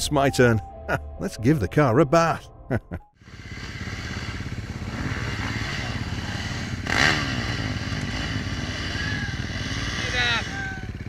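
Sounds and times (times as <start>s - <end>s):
dirt bike engines: 3.2s - 11.0s
engine revving: 3.2s - 11.0s.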